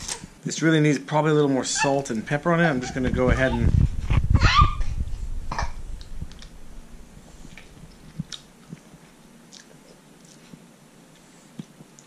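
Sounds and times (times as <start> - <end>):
person chewing: 7.5 - 12.0.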